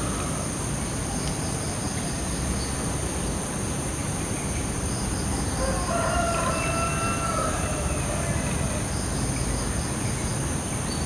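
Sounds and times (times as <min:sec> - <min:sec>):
rooster crowing: 0:05.6 - 0:08.8.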